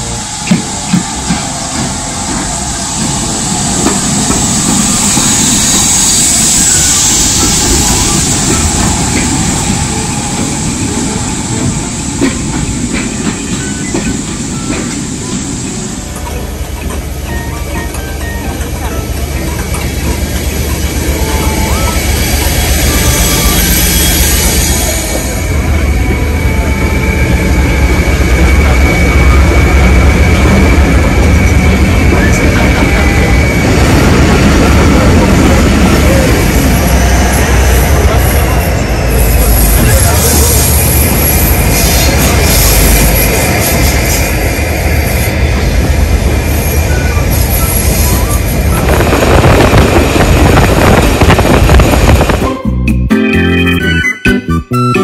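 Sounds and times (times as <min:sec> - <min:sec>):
high-pitched whine: 0:00.0 - 0:12.8
steam locomotive hissing steam: 0:00.0 - 0:52.5
train coaches rumbling by: 0:00.0 - 0:54.1.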